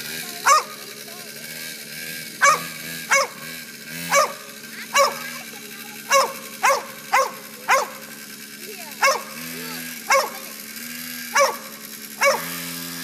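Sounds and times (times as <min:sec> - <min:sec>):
dog barking: 0:00.4 - 0:00.8, 0:02.4 - 0:03.5, 0:04.1 - 0:05.4, 0:06.1 - 0:08.0, 0:09.0 - 0:09.4, 0:10.1 - 0:10.5, 0:11.3 - 0:12.6.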